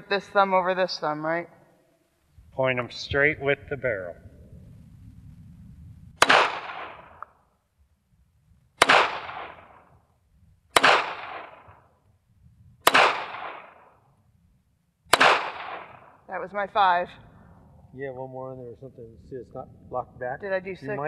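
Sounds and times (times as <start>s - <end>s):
pistol shots with echo: 6.2s - 7.2s, 8.8s - 9.8s, 10.8s - 11.8s, 12.8s - 14.0s, 15.1s - 16.1s.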